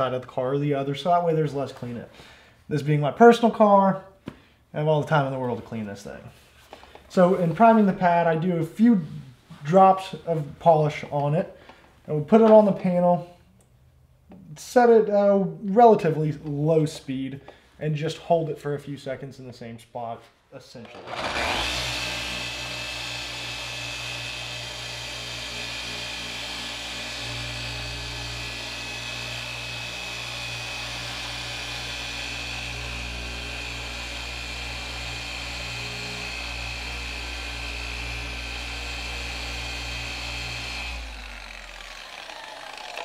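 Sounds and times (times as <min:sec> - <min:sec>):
polisher whining: 0:20.9 - 0:43.0.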